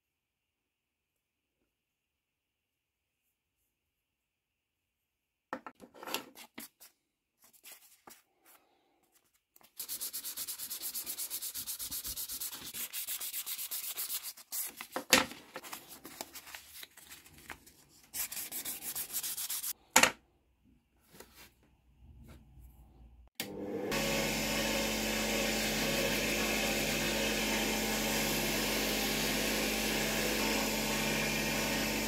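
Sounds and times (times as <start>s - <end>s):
sandpaper rubbing back and forth: 9.6s - 15.0s, 18.0s - 19.8s.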